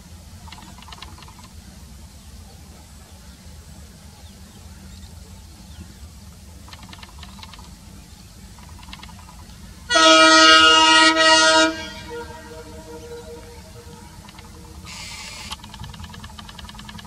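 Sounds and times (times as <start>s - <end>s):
locomotive air horn blast: 9.9s - 15.5s.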